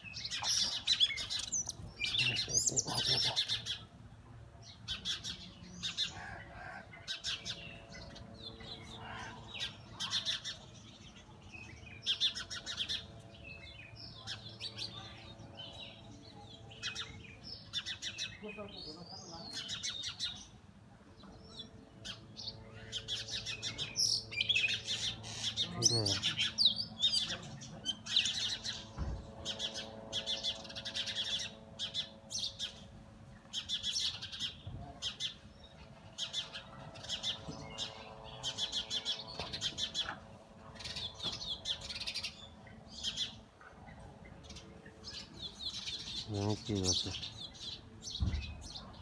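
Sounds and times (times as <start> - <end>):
bird chirping: 0.0 - 3.9.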